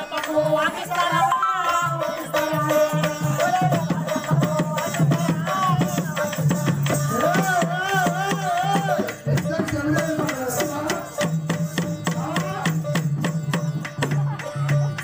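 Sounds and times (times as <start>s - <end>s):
person singing: 0.0s - 11.4s
drums fast beat: 0.0s - 15.0s
harmonium melody: 0.0s - 15.0s.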